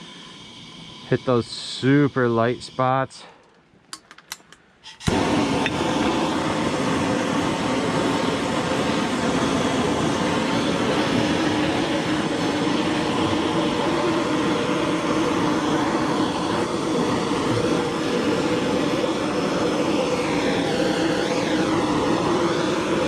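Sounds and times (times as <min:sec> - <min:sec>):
hand torch lighting: 0:03.4 - 0:23.0
torch flame rushing: 0:05.0 - 0:23.0.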